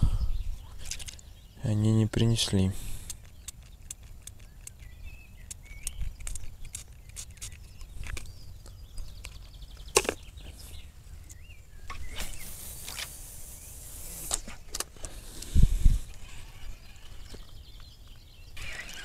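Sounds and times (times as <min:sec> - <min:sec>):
small birds chirping: 0:00.0 - 0:19.0
tackle clicks: 0:03.0 - 0:08.3.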